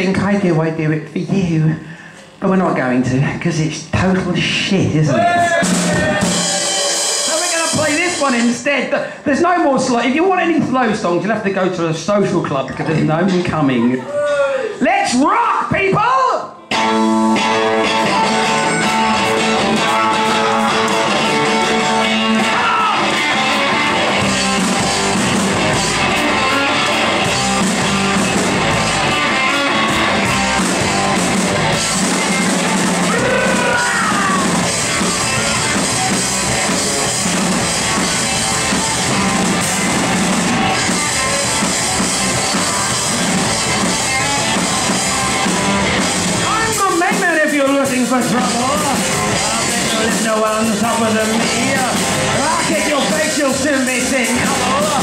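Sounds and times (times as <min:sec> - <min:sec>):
live rock band playing: 0:05.1 - 0:08.6, 0:16.7 - 0:55.0.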